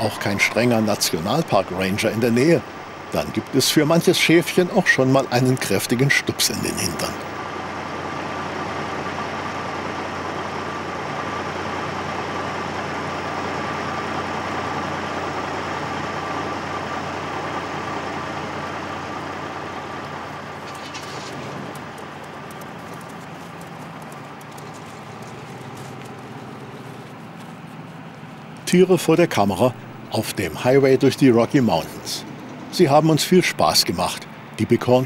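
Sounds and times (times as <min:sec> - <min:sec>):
diesel truck engine idling: 0:00.0 - 0:35.0.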